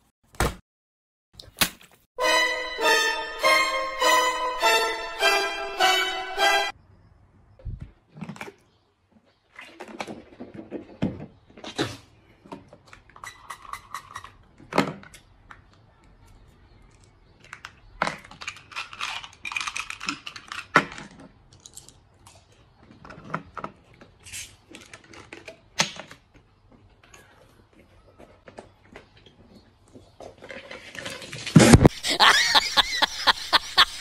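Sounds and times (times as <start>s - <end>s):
plastic bottles and packets handled: 7.8s - 31.9s.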